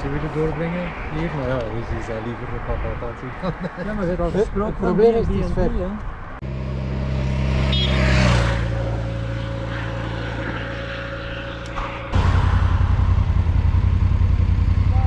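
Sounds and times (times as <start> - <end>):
vehicle passing: 6.0 - 15.0
motorcycle engines running: 6.5 - 15.0
pulsing engine note: 6.6 - 15.0.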